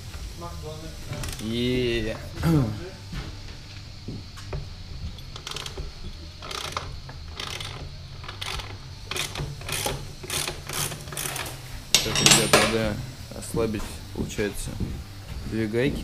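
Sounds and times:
wrench clicking and rasping: 1.1 - 1.6, 4.5 - 12.9.

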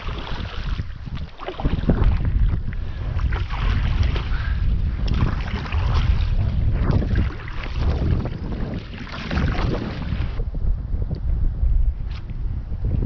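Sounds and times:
paddle splashing in water: 0.0 - 10.4
wind buffeting microphone: 0.0 - 13.0.

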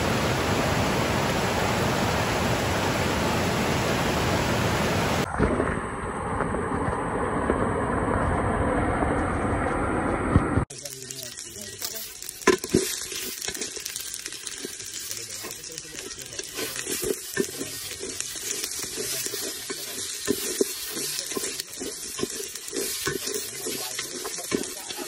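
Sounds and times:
spices sizzling in oil: 10.7 - 25.0
spatula scraping a metal pot: 11.0 - 25.0.

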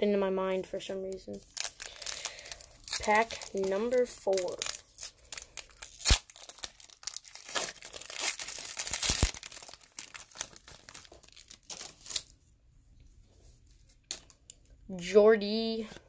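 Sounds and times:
foil wrapper crinkling: 1.3 - 12.4
foil ripping: 1.4 - 12.3.

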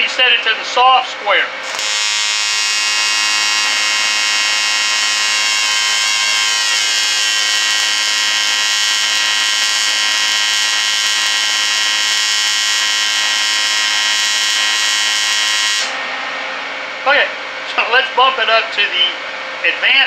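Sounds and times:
welding arc buzzing: 1.6 - 16.1.

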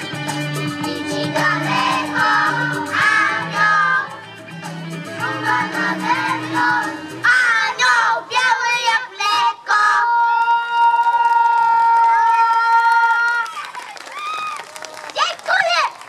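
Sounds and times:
recorded accompaniment with bass: 0.0 - 9.9
children singing: 0.8 - 4.2, 5.2 - 10.6.

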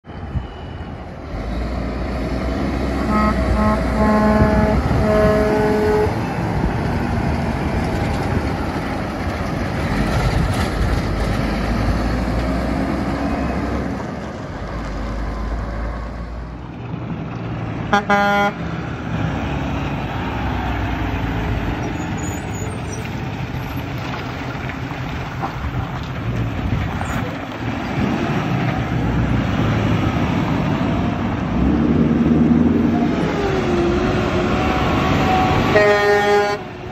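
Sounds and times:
truck diesel engines passing: 0.0 - 36.9
loud horn honk: 3.0 - 6.2, 17.9 - 18.6, 35.2 - 36.7
truck horn toots: 3.0 - 6.3, 17.9 - 18.6, 35.0 - 36.7.

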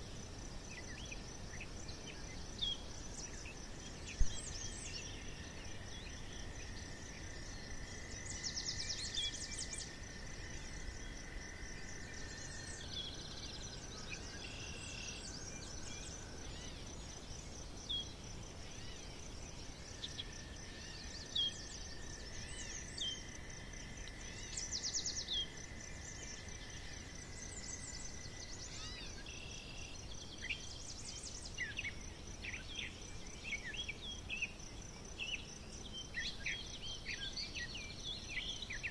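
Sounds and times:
small birds chirping: 11.9 - 38.9.

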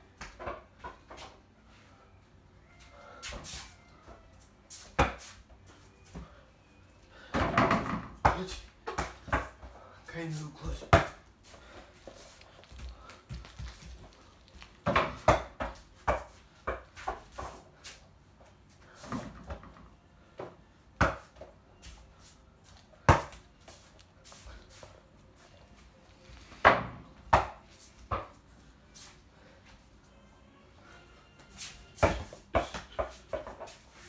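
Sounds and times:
ball hitting backboard and door: 7.3 - 9.7, 10.8 - 11.2, 14.8 - 17.5, 26.6 - 28.4, 32.0 - 33.7
ball bouncing on floor: 7.4 - 9.7, 10.8 - 11.3, 12.7 - 17.6, 26.6 - 28.4, 32.0 - 33.8.

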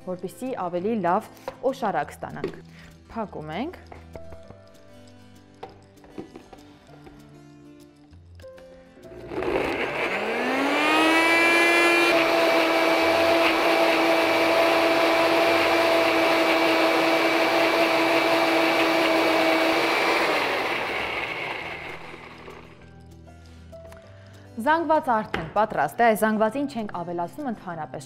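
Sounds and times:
blender motor whining: 9.1 - 22.8.

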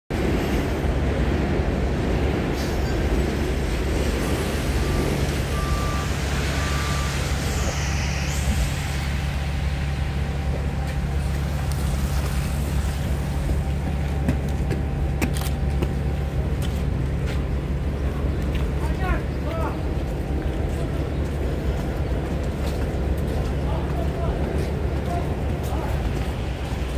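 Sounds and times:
diesel bus engine idling: 3.3 - 26.9
short beeps: 4.2 - 7.9.

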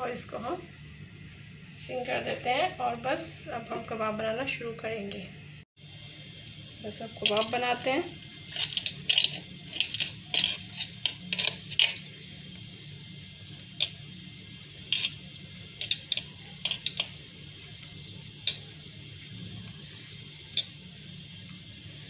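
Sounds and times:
steady low hum: 0.0 - 22.0
clicks and clinks against plate: 8.6 - 12.3, 14.8 - 20.8.

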